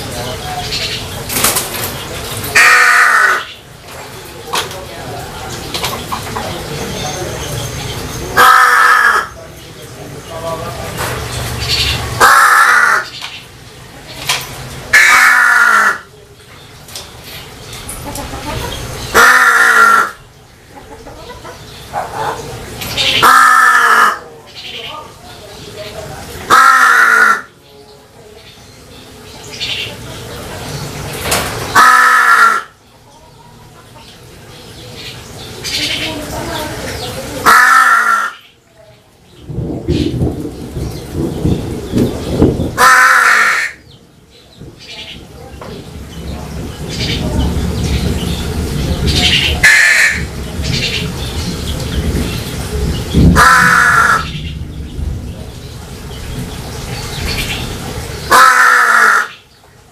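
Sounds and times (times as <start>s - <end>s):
crow cawing: 2.5s - 3.6s, 8.4s - 9.4s, 12.2s - 13.2s, 14.9s - 16.1s, 19.1s - 20.2s, 23.2s - 24.3s, 26.5s - 27.6s, 31.7s - 32.8s, 37.4s - 38.5s, 42.8s - 43.8s, 49.6s - 50.3s, 53.4s - 54.4s, 58.3s - 59.4s
low irregular rumbling: 38.4s - 58.4s.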